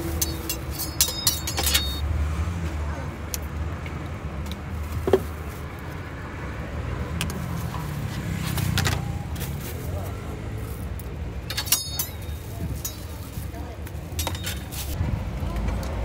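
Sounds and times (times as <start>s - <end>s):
low street traffic rumble: 0.0s - 16.0s
metal spatula clinking on griddle: 0.1s - 2.0s, 11.5s - 13.2s.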